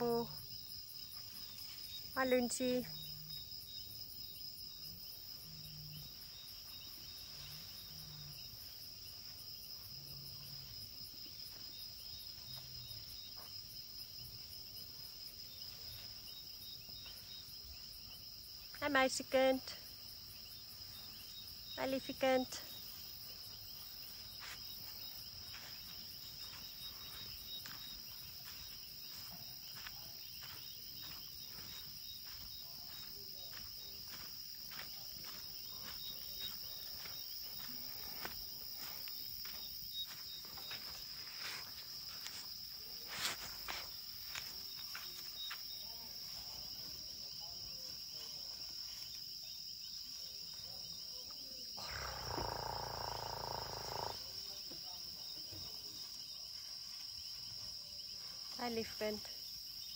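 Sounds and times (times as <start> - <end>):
crickets trilling: 0.0 - 59.9
soft footsteps: 22.9 - 45.8.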